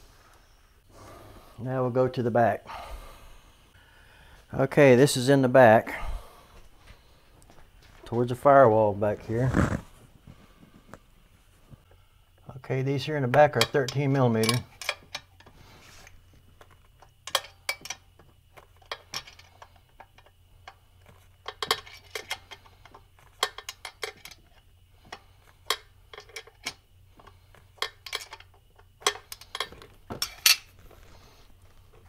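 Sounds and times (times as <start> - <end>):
wrench clinking on metal: 13.4 - 15.5, 17.2 - 18.2, 21.4 - 30.8.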